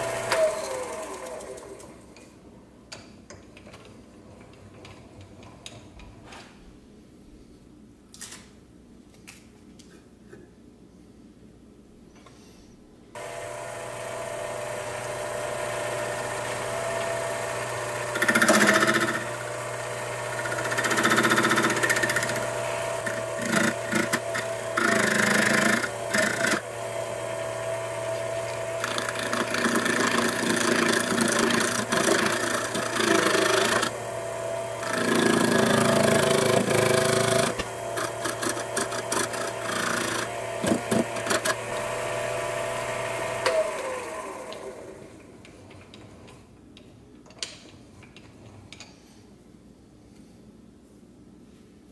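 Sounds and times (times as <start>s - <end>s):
lathe motor humming: 0.0s - 1.8s, 13.2s - 45.1s
cutting tool scraping workpiece: 15.8s - 26.6s, 28.0s - 34.0s, 34.7s - 43.5s.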